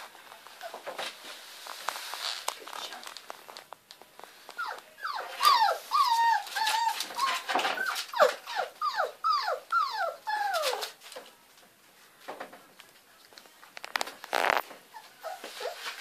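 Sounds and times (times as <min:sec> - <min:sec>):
puppies whining: 0:04.6 - 0:11.0, 0:14.4 - 0:16.0.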